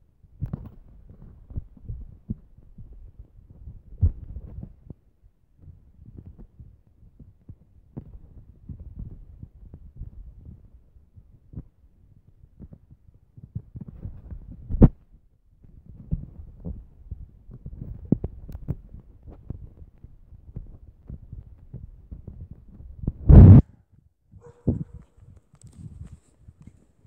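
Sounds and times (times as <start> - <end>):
phone microphone rumbling and thumping: 13.5 - 15.1, 15.7 - 23.7, 24.4 - 26.2.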